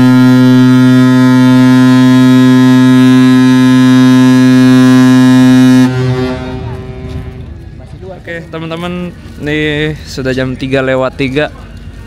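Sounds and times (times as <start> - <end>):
ship horn blast: 0.0 - 8.0.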